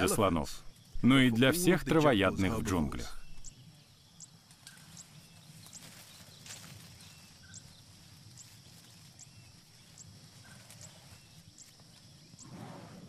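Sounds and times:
softer lower chirps: 0:00.0 - 0:05.8.

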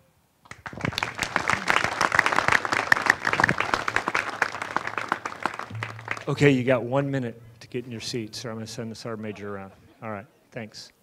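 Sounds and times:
audience applauding: 0:00.5 - 0:06.8.

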